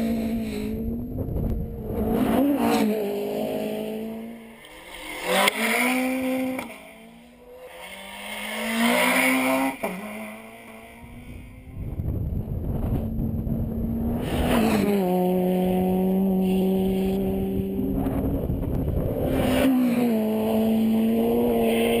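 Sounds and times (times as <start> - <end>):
vehicle engine hum: 0.0 - 8.8, 9.5 - 22.0
wind buffeting microphone: 0.7 - 2.4, 11.0 - 14.6, 17.0 - 19.6.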